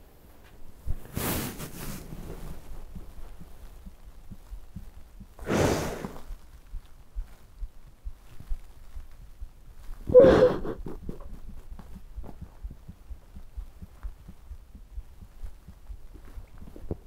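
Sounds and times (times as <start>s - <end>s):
soft low thumps: 2.0s - 17.0s
person breathing: 5.4s - 6.2s, 10.1s - 10.9s
person sobbing: 10.1s - 11.1s.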